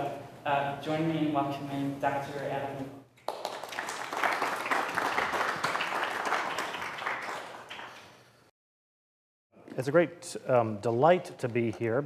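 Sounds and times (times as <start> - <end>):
audience applauding: 3.3 - 8.3.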